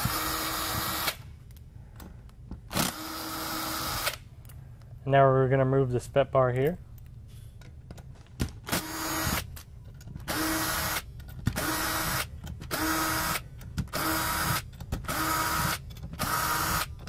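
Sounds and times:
power screwdriver whining: 0.0s - 1.2s, 2.7s - 4.2s, 8.7s - 9.5s, 10.2s - 17.0s.

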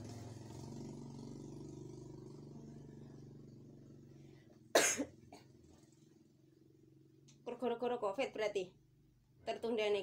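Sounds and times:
vehicle engine running: 0.0s - 7.6s
person coughing: 4.8s - 5.5s.

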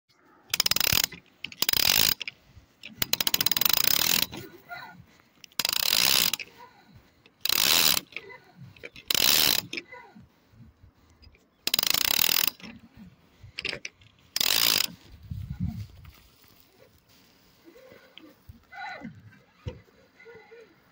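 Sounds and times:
fishing reel ratcheting: 0.5s - 4.5s, 5.4s - 6.6s, 7.4s - 8.2s, 8.8s - 9.8s, 11.6s - 12.8s, 13.6s - 15.0s.

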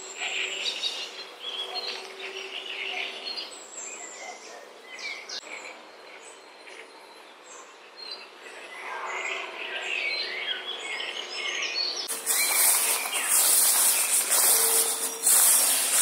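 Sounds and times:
birds chirping and singing: 0.0s - 16.0s
grass brushing against microphone: 12.1s - 16.0s.

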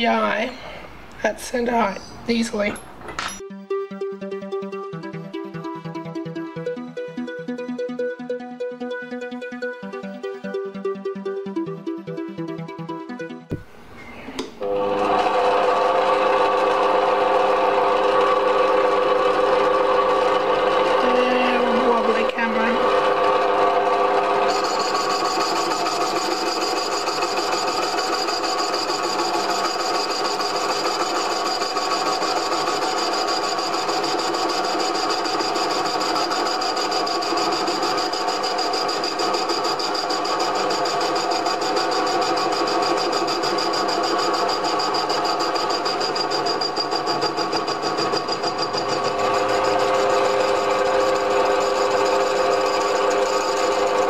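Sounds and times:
lathe motor and gear whine: 14.6s - 54.0s.

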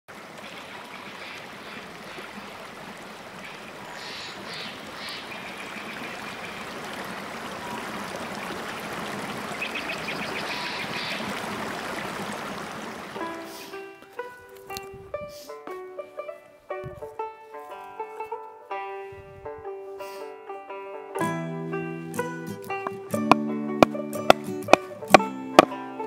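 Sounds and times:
creek water rushing over rocks: 0.1s - 14.4s, 22.1s - 26.0s.

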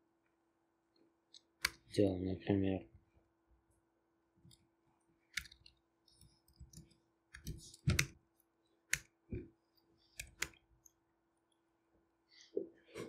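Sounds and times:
keyboard key clicks: 7.4s - 8.2s, 10.2s - 10.6s.

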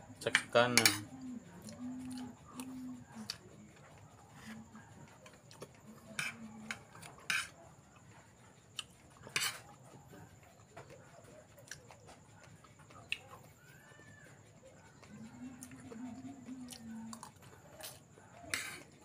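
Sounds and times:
dishes and utensils clattering: 0.2s - 1.1s, 6.0s - 7.6s, 9.2s - 9.7s
utensil scrapes and clinks: 0.2s - 1.1s, 6.0s - 7.6s, 9.2s - 9.7s.

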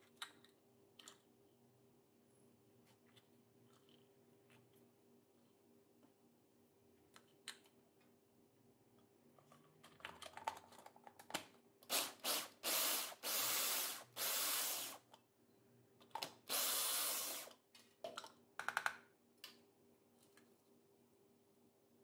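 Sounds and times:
food chopper motor: 11.9s - 15.0s, 16.5s - 17.5s.

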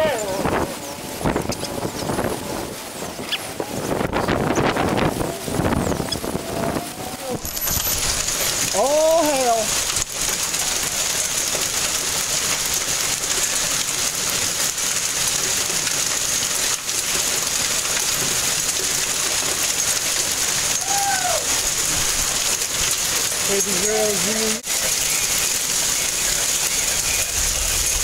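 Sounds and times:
person's voice: 0.0s - 0.6s, 8.7s - 9.7s, 23.4s - 24.6s
hail and rain falling: 0.0s - 28.0s.

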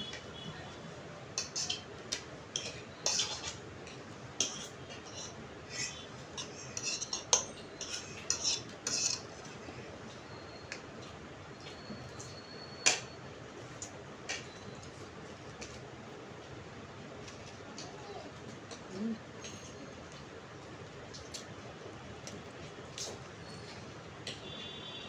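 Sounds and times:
cutlery clinking on plates: 1.4s - 3.6s, 6.4s - 9.3s.

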